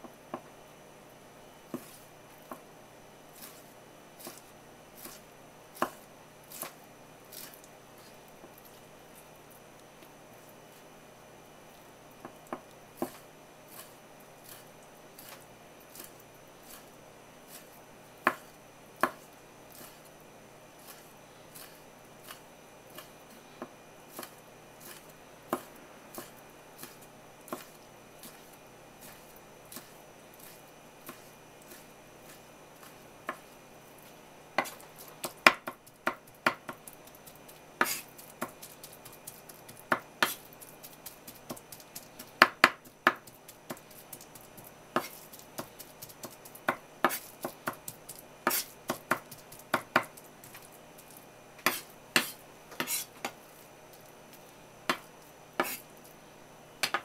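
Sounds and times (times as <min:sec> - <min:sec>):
knife tapping on cutting board: 0:42.4 - 0:43.3.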